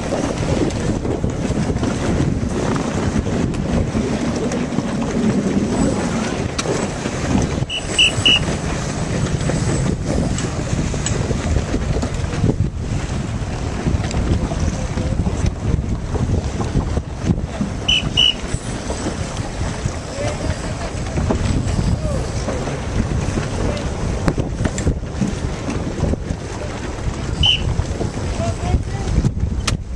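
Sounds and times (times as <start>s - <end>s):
choppy water: 0.0s - 29.9s
wind buffeting microphone: 0.0s - 29.9s
short high beeps: 7.7s - 8.5s, 17.9s - 18.4s.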